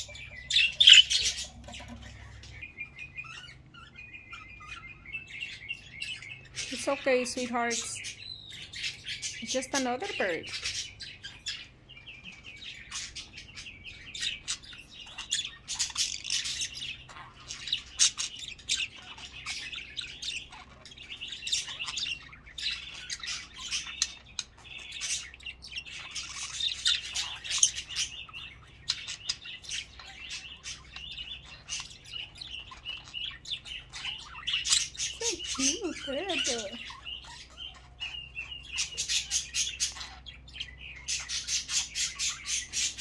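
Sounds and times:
budgerigars chattering: 0:00.0 - 0:43.0.

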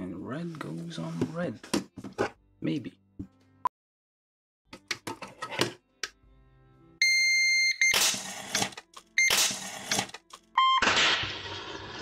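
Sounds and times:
loud electronic beep: 0:09.2 - 0:09.5.

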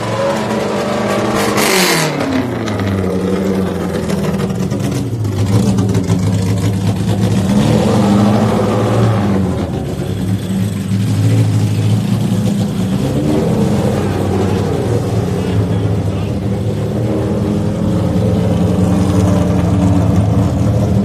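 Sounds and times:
engine revving hard: 0:00.0 - 0:03.3, 0:07.2 - 0:09.8.

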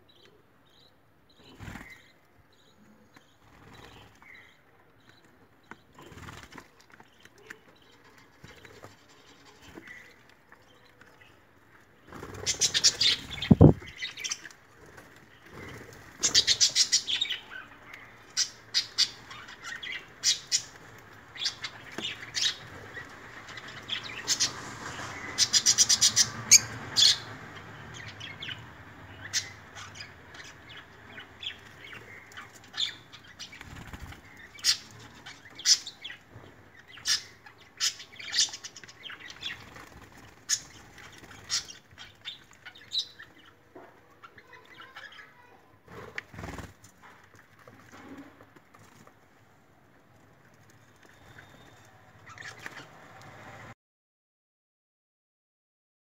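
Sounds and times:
wings flapping: 0:06.0 - 0:06.8, 0:12.0 - 0:16.8, 0:33.4 - 0:35.0, 0:39.4 - 0:41.9, 0:45.9 - 0:48.0
birds splashing in water: 0:11.9 - 0:43.3.

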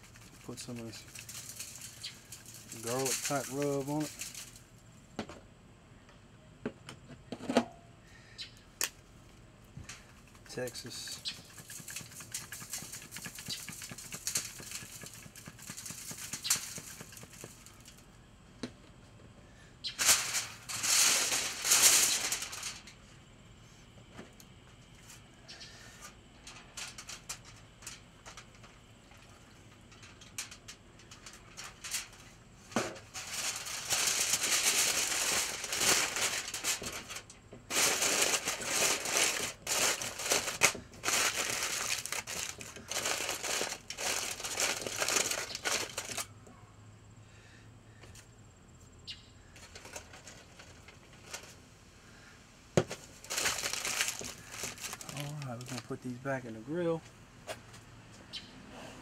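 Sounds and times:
aluminum foil crinkling: 0:00.0 - 0:04.8, 0:09.8 - 0:18.0, 0:19.8 - 0:23.0, 0:26.4 - 0:46.3, 0:49.6 - 0:51.6, 0:52.9 - 0:56.9.

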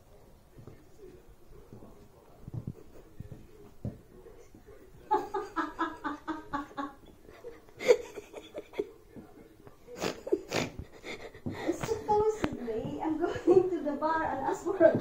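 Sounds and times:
woman laughing: 0:05.1 - 0:08.9.

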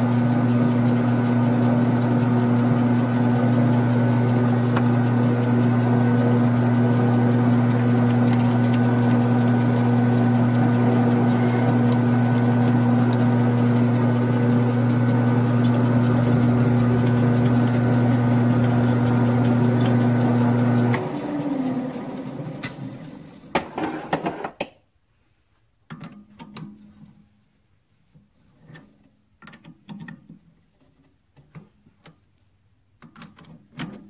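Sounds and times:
lathe humming: 0:00.0 - 0:23.2
lathe winding down whine: 0:00.0 - 0:23.3
sharp clicks and knocks: 0:28.7 - 0:32.3, 0:33.0 - 0:34.0.

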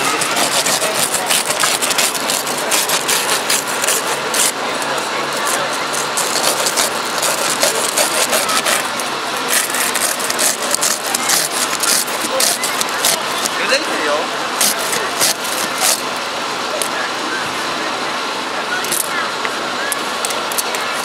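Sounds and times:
saw rasping through glass: 0:00.0 - 0:04.6, 0:05.3 - 0:13.5, 0:14.6 - 0:16.0.

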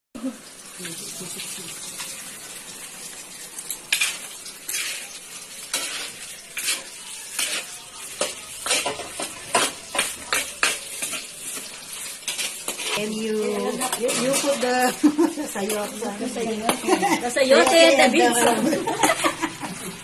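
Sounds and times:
food sizzling: 0:00.2 - 0:20.0
metal ladle scraping a wok: 0:03.9 - 0:16.8.

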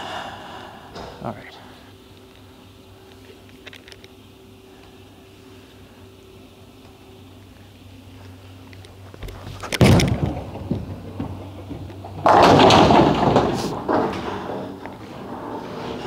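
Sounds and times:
bowling ball rolling: 0:09.2 - 0:16.0
bowling pins clattering: 0:09.2 - 0:16.0
bowling ball landing on lane: 0:09.3 - 0:14.9.

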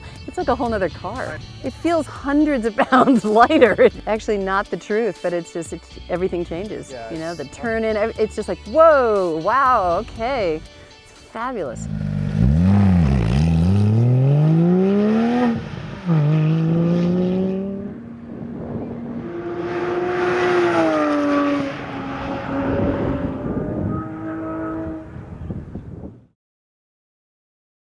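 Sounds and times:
car engine accelerating: 0:11.7 - 0:25.4
car passing by: 0:12.2 - 0:25.3.

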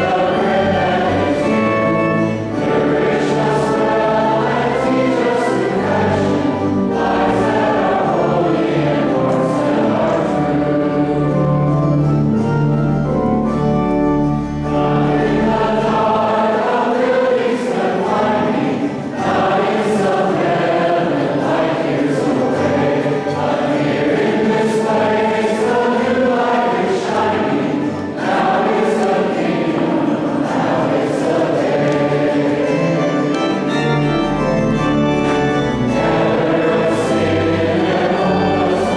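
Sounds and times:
choir singing a hymn: 0:00.0 - 0:38.9
organ: 0:00.0 - 0:38.9.

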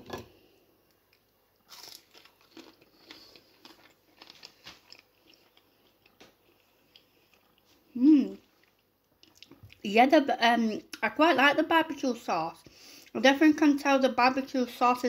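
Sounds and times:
biting into crunchy food: 0:01.6 - 0:07.6
crunchy chewing: 0:01.6 - 0:09.8.

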